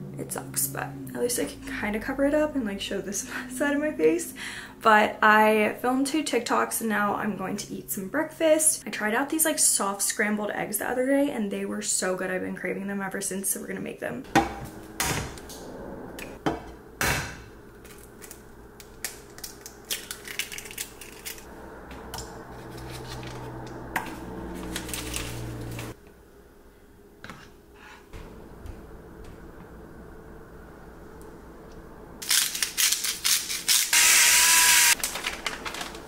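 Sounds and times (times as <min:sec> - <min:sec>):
low steady hum: 0:00.0 - 0:08.2, 0:10.6 - 0:33.0.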